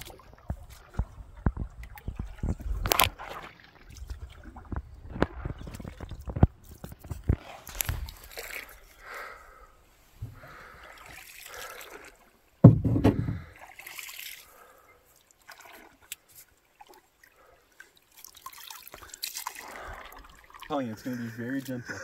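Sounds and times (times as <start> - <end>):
paddle pulling through water: 0.0 - 22.0
loud low thump: 12.6 - 13.5
water dripping: 13.3 - 21.8.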